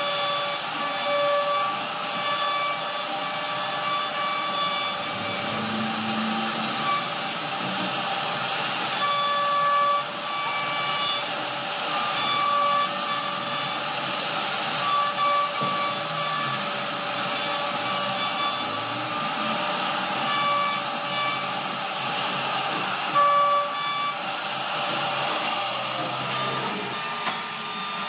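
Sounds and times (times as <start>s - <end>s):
router cutting wood: 0.0s - 28.0s
high whining tones: 4.4s - 7.7s, 14.8s - 28.0s.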